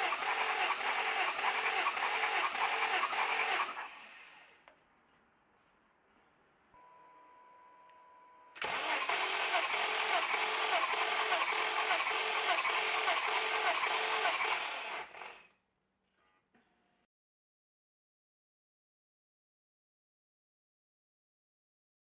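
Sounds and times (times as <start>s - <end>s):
car engine cranking without firing: 0.0s - 4.2s, 8.6s - 15.2s.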